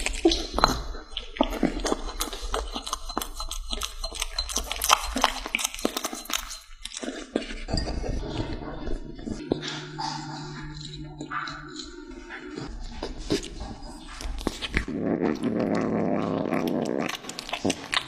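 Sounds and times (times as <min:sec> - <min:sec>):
kitten licking and chewing meat: 0:00.0 - 0:18.0
low hum: 0:07.7 - 0:14.9.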